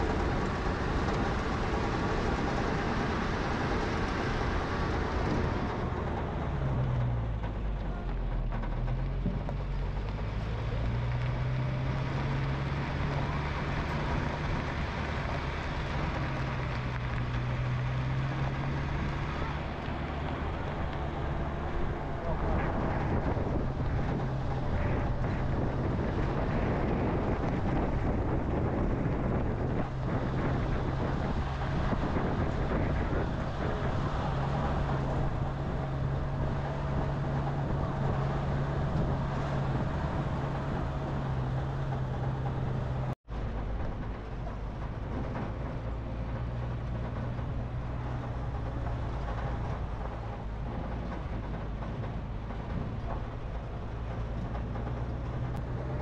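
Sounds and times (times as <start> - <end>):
vehicle engine and road noise: 0.0 - 56.0.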